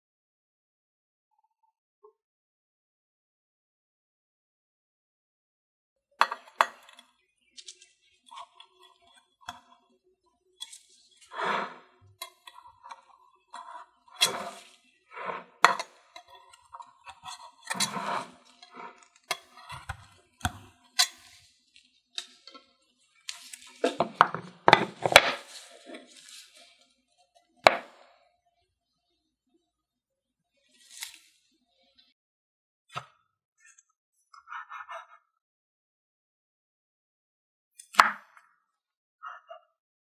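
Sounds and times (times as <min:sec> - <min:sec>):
knife scraping glass container: 0:10.6 - 0:21.4.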